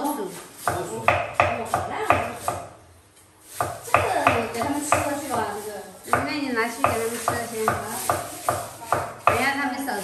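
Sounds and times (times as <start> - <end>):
cleaver chopping vegetables: 0.6 - 2.7, 3.4 - 5.4, 6.0 - 9.6.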